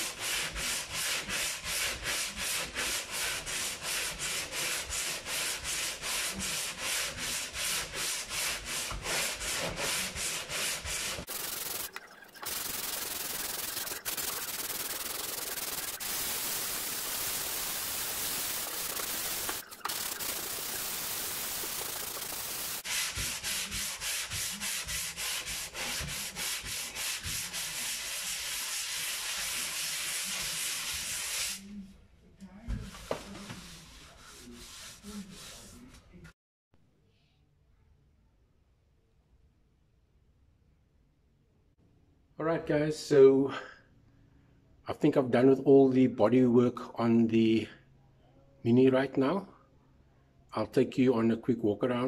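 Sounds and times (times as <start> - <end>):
sandpaper rubbing on metal panel: 0.0 - 31.6, 33.6 - 35.9.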